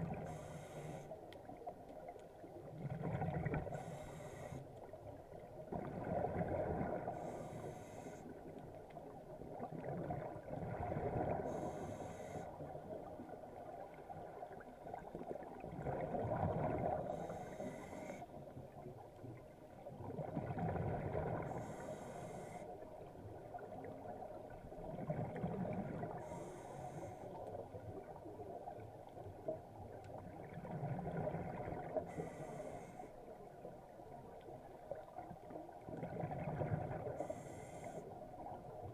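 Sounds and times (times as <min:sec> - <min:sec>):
scuba regulator inhale hiss: 0:00.2 - 0:01.2, 0:03.7 - 0:04.7, 0:07.2 - 0:08.3, 0:11.4 - 0:12.6, 0:17.1 - 0:18.2, 0:21.5 - 0:22.7, 0:26.2 - 0:27.3, 0:32.1 - 0:33.1, 0:37.2 - 0:38.1
exhaled air bubbling: 0:02.7 - 0:04.3, 0:05.6 - 0:07.4, 0:09.4 - 0:11.7, 0:15.4 - 0:17.3, 0:19.9 - 0:21.8, 0:24.8 - 0:26.6, 0:30.2 - 0:32.4, 0:35.8 - 0:37.5.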